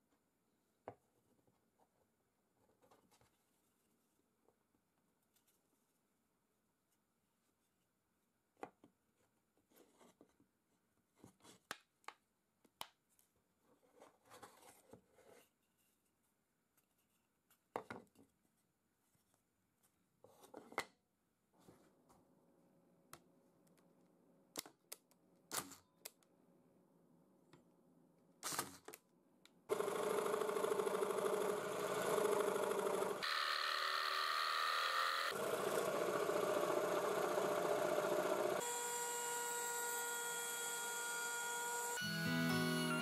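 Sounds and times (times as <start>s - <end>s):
jigsaw cutting plywood: 29.7s - 42.1s
router high whine: 29.7s - 43.0s.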